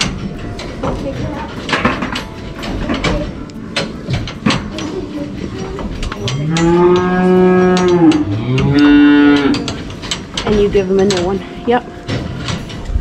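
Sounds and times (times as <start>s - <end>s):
cattle mooing: 6.2s - 10.0s.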